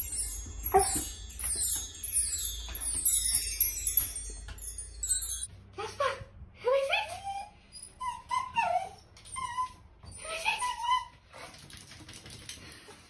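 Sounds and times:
small dog whining: 0:07.1 - 0:11.2.

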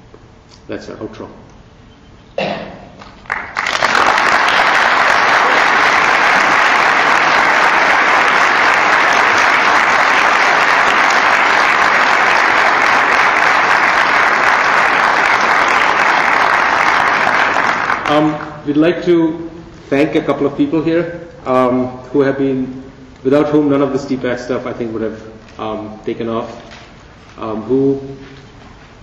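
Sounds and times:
audience applauding: 0:03.0 - 0:18.6.

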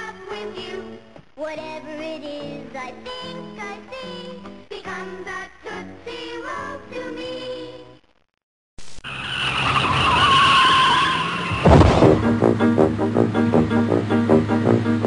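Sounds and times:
car tyres skidding: 0:09.0 - 0:12.4
loud heavy thump: 0:11.6 - 0:12.6.

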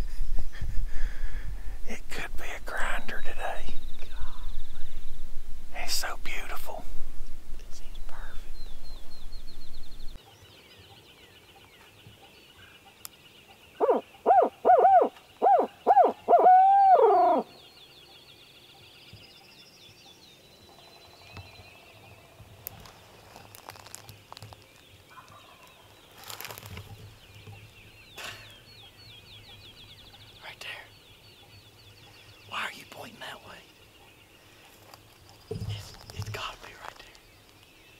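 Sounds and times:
owl hoot call: 0:13.8 - 0:17.5.

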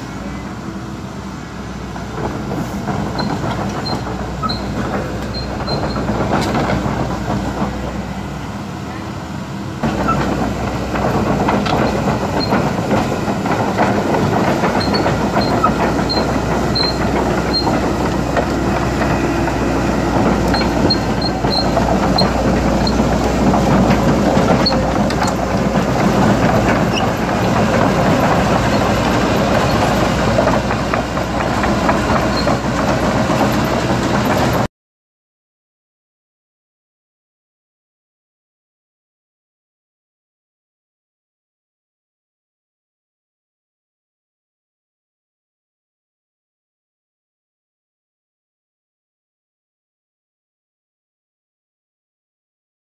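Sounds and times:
diesel engine running: 0:00.0 - 0:34.7
crawler tracks clanking: 0:02.0 - 0:09.1, 0:09.8 - 0:34.7.

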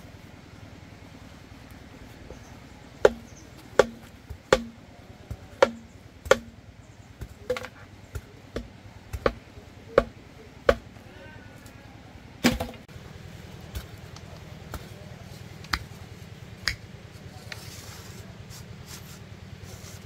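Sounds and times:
blade chopping: 0:03.0 - 0:06.6, 0:07.2 - 0:11.0, 0:12.4 - 0:12.9.

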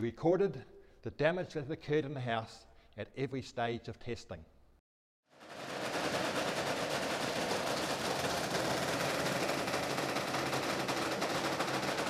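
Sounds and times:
dense rapid rattling crackle: 0:05.4 - 0:12.0.

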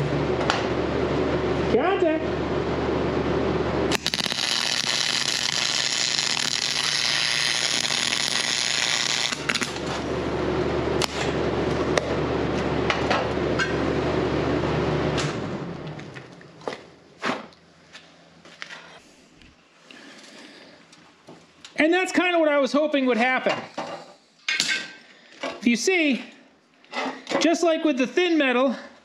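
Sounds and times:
low hum: 0:00.0 - 0:17.1
welding arc hissing and crackling: 0:03.9 - 0:10.0.

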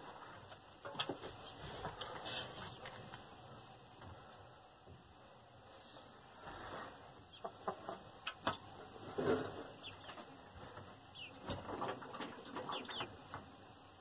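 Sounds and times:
chickens chirping and clucking: 0:07.2 - 0:08.6, 0:09.5 - 0:13.3.

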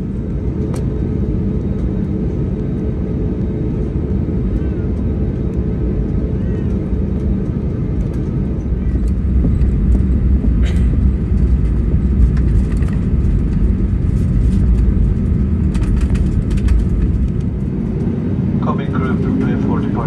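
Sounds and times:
airliner cabin rumble: 0:00.0 - 0:20.0.

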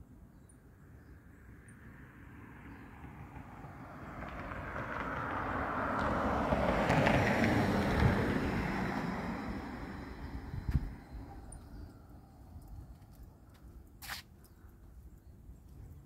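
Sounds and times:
car passing on road: 0:01.5 - 0:12.6.

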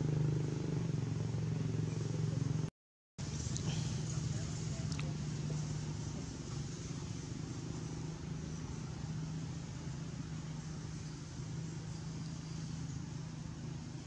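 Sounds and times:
low mechanical hum: 0:00.0 - 0:14.0
outdoor hiss: 0:03.2 - 0:14.0.

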